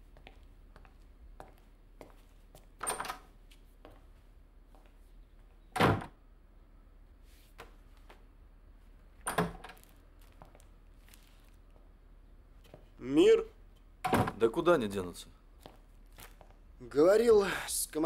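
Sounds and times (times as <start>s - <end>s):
door opening and shutting clunks: 5.8s - 6.2s, 14.0s - 14.4s.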